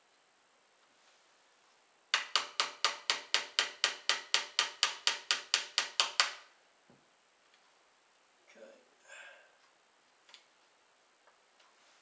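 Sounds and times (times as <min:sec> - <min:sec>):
metal tool tapping gun barrel: 0:02.2 - 0:06.4.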